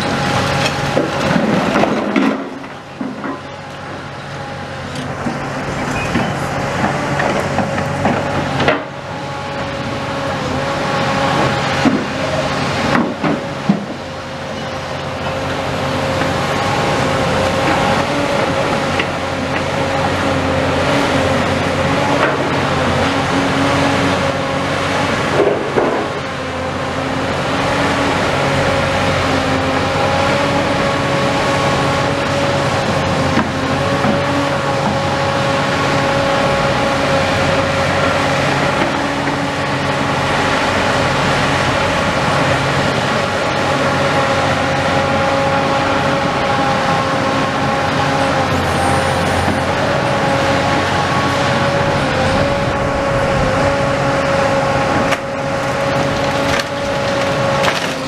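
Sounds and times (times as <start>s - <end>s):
excavator diesel engine running: 0.0s - 58.0s
steady whining tone: 45.9s - 55.8s.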